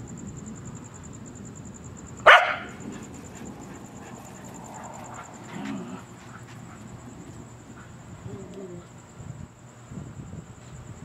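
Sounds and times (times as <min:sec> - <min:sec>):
dog barking: 0:02.2 - 0:03.1.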